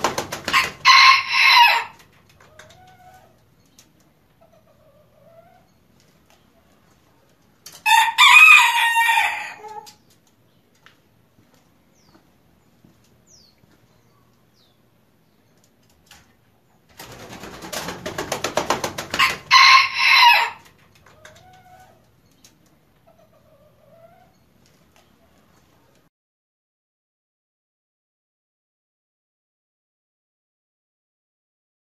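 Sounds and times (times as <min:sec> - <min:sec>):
wings flapping: 0:00.0 - 0:01.0, 0:16.9 - 0:21.8
rooster crowing: 0:00.5 - 0:02.0, 0:07.8 - 0:09.9, 0:19.2 - 0:20.6.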